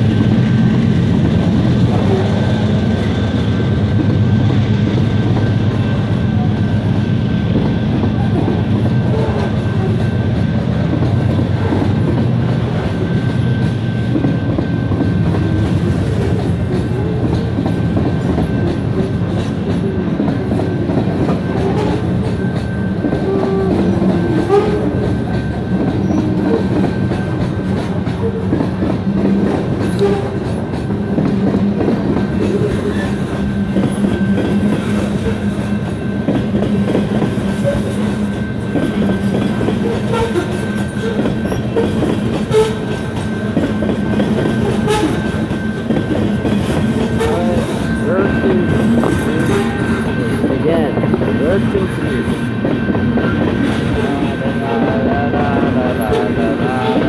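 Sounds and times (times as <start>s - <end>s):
clickety-clack over rail joints: 0.0s - 57.0s
train wheels rumbling on rails: 0.0s - 57.0s
wheel squeals: 21.3s - 28.6s, 37.3s - 50.4s.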